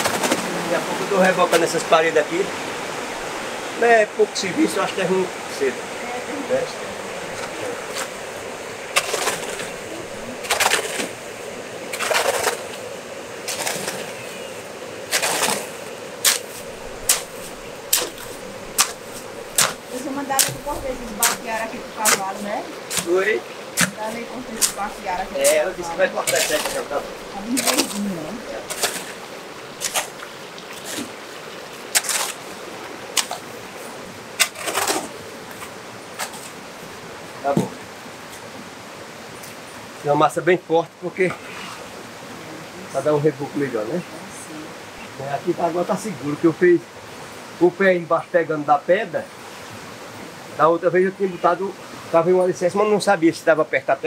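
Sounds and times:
tool scraping wet mortar: 8.9s - 11.2s, 11.9s - 12.8s, 13.4s - 14.2s, 15.1s - 29.2s, 29.8s - 30.2s, 31.9s - 32.4s, 34.4s - 35.2s.

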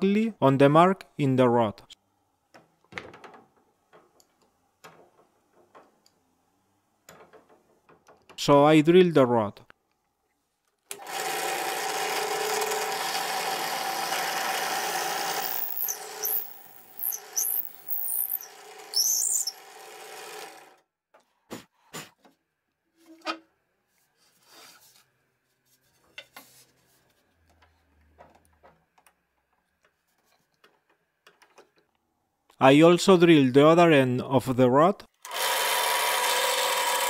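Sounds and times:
drill press motor running: 10.9s - 20.7s, 35.3s - 37.0s
drill bit squealing: 14.2s - 19.7s.

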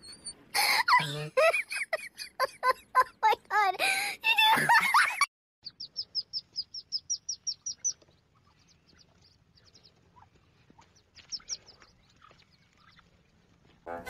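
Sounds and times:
ducklings peeping: 5.6s - 14.0s.

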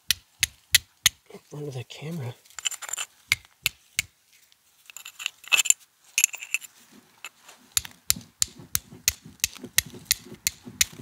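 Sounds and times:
steel striker scraping flint: 2.5s - 11.0s
steel striking flint: 2.6s - 4.1s, 4.9s - 11.0s.

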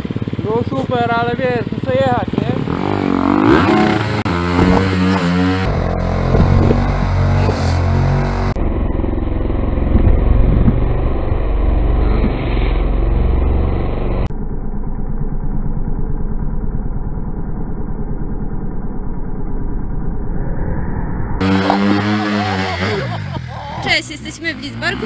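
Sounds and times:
low pulsing engine: 0.0s - 25.0s
motorcycle engine revving: 0.0s - 25.0s.

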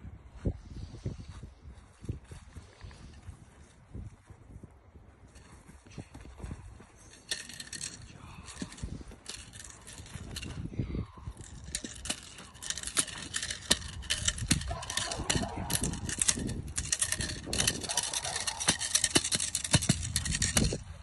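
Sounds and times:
bite suit rattling and scuffling: 5.3s - 21.0s.

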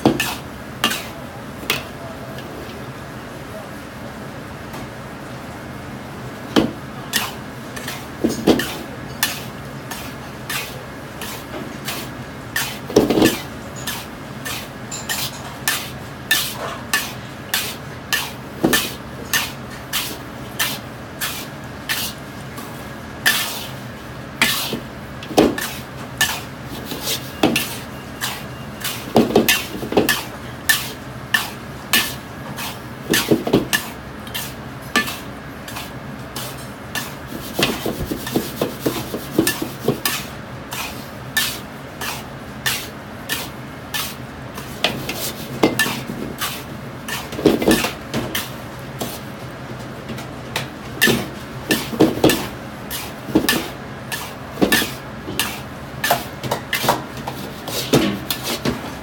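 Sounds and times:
metal spatula scraping salt: 7.1s - 22.2s, 23.2s - 23.8s, 24.4s - 24.8s, 25.6s - 49.2s, 51.0s - 58.7s
spatula clanking against wok: 25.4s - 44.1s, 50.6s - 58.7s.

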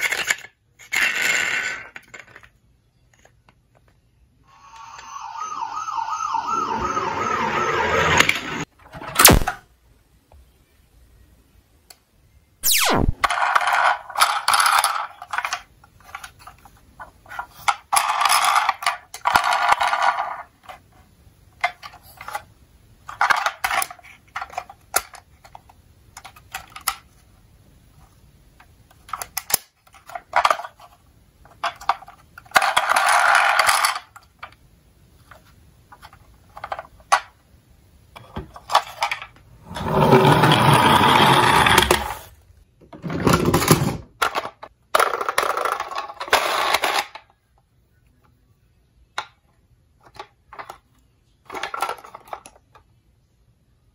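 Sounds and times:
toy electronic siren: 4.5s - 8.6s.

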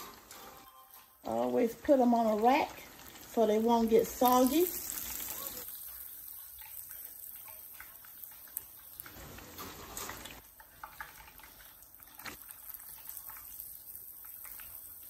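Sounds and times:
fish sizzling in grease: 1.6s - 15.0s.

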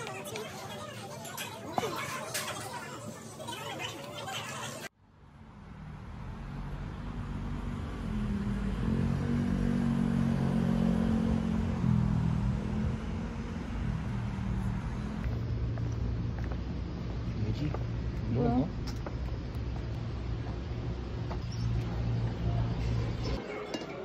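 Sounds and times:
vehicle engine rumbling: 5.0s - 23.4s.

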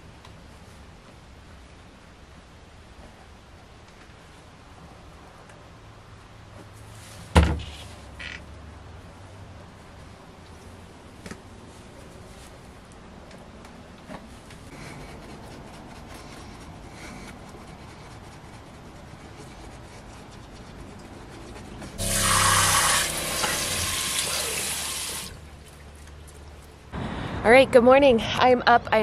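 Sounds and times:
faucet running into sink: 22.0s - 25.4s.

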